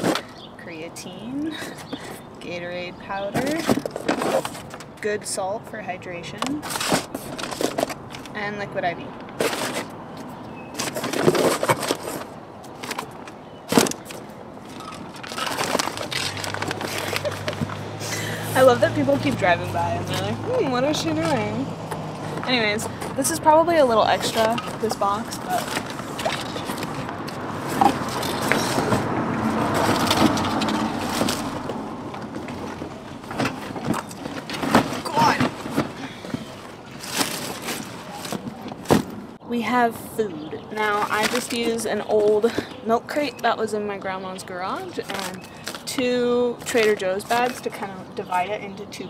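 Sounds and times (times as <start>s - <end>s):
boxes scraping in car trunk: 3.4s - 4.8s, 6.6s - 8.0s, 9.4s - 9.9s, 10.6s - 13.1s, 24.0s - 31.8s, 32.5s - 39.2s
packaging rustling: 9.3s - 10.0s, 10.7s - 18.2s, 24.2s - 31.8s, 32.4s - 39.1s.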